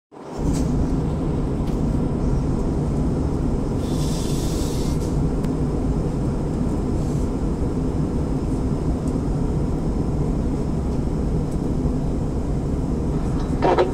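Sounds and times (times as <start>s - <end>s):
airliner cabin rumble: 0.1s - 13.9s.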